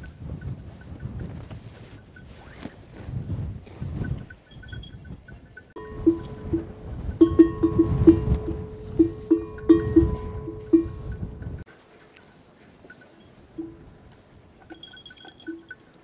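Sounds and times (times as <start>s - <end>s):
metal bell clanking: 4.1s - 13.9s, 14.6s - 16.0s
faint high ringing: 4.4s - 16.0s.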